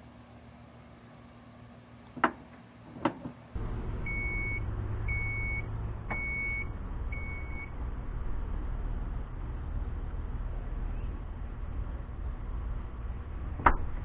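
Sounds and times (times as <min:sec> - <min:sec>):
low steady rumble: 0:03.5 - 0:14.0
high warning beeps: 0:04.0 - 0:07.7.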